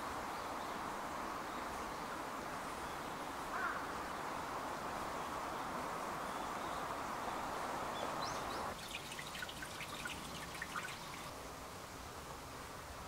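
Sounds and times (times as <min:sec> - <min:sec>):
water trickling: 0:08.2 - 0:11.5
high drips inside a jar: 0:08.8 - 0:11.3.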